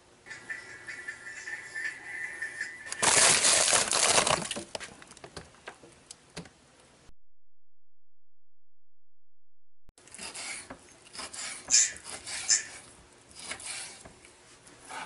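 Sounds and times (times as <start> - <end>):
freezer paper crackling: 3.0 - 5.0.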